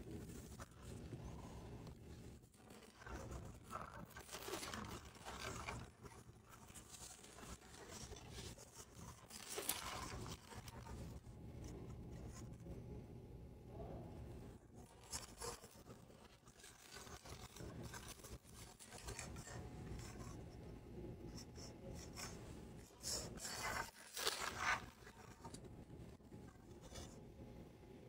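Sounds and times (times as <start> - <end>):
foil and paper wrappers crinkling: 2.6 - 6.0, 8.9 - 10.9, 23.4 - 25.6.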